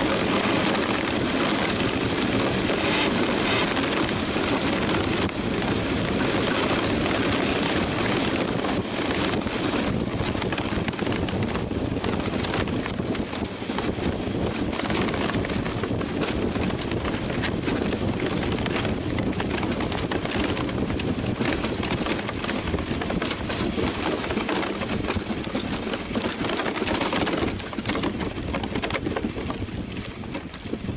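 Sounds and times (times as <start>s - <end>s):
runners on ice: 0.0s - 30.9s
rushing wind: 0.0s - 30.9s.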